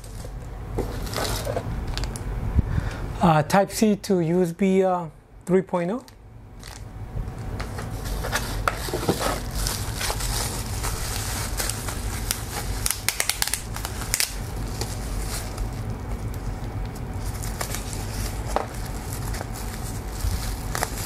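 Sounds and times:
steady low hum: 0.0 - 21.0
plastic bag crinkling: 6.0 - 21.0.

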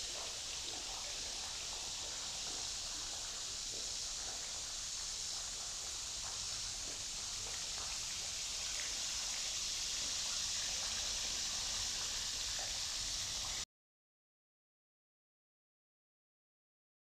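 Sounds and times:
high steady hiss: 0.0 - 13.6.

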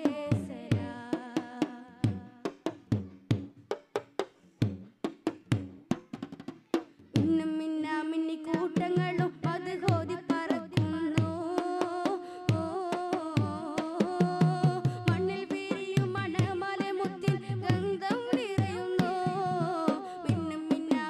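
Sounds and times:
man singing devotional song: 8.4 - 21.0.

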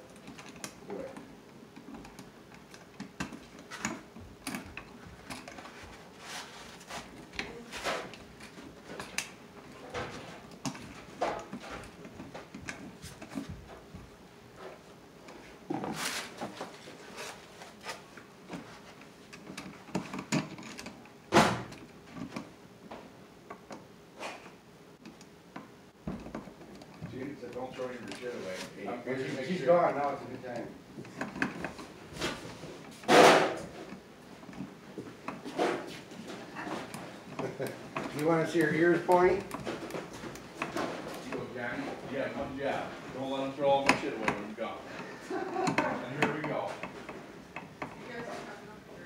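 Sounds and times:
hands working electrical outlet: 43.4 - 48.2.

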